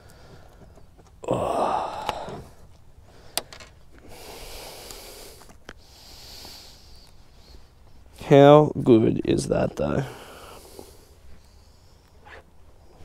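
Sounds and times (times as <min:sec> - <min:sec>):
man exhaling heavily: 0:01.2 - 0:07.0, 0:10.0 - 0:11.2.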